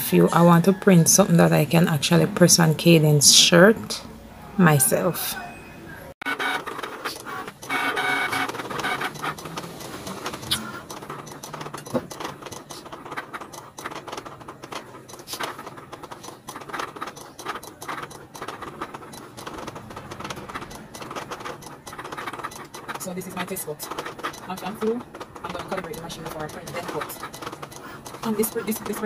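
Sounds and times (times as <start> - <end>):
cutting machine motors whirring: 6.2 - 29.0
rapid clicking: 6.2 - 29.0.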